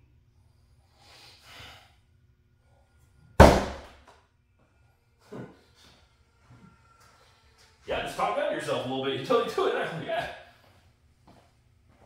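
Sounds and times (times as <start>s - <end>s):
axe hitting wooden target: 3.4s - 4.0s.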